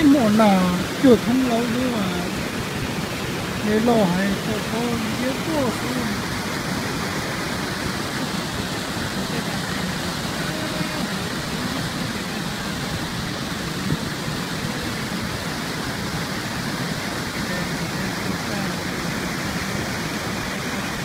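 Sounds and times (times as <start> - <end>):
stream rushing over rocks: 0.0 - 21.0.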